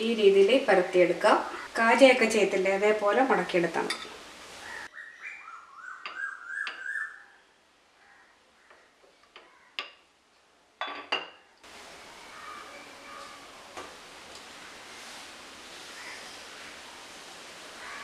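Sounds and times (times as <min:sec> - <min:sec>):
small bird chirping: 0:04.7 - 0:07.4.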